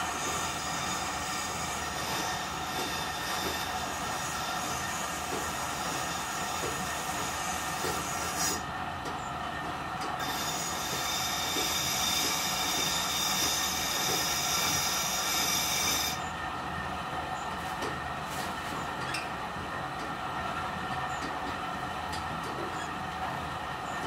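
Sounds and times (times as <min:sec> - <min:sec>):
grindstone drone: 0:10.2 - 0:16.3.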